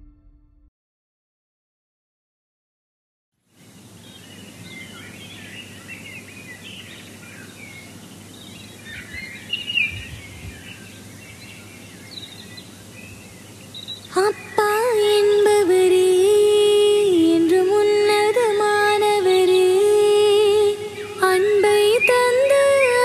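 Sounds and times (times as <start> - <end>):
music: 0.0 - 0.7
steady background hiss: 3.4 - 23.0
birds chirping: 3.5 - 23.0.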